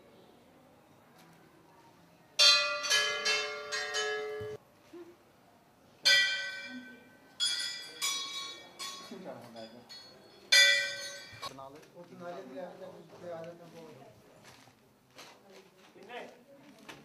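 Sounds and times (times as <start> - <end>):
metal temple bell ringing: 2.4 - 4.6, 6.1 - 11.5.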